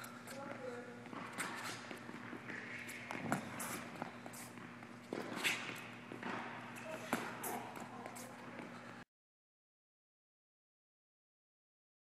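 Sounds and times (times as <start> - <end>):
shoes squeaking on court: 0.0 - 9.0.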